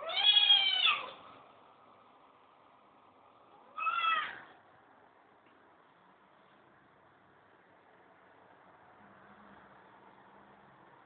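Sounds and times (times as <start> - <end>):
cat meowing: 0.0 - 1.2, 3.6 - 4.5.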